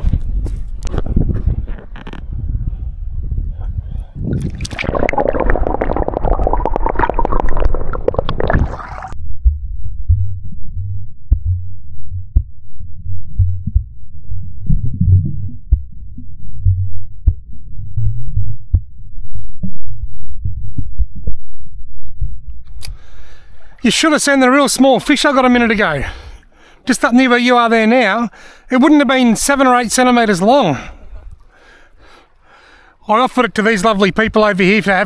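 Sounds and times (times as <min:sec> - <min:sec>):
water sloshing and bubbling: 0:04.2 - 0:09.2, 0:22.5 - 0:26.9, 0:31.0 - 0:31.7
muffled underwater thumps: 0:04.3 - 0:10.3, 0:14.7 - 0:17.5.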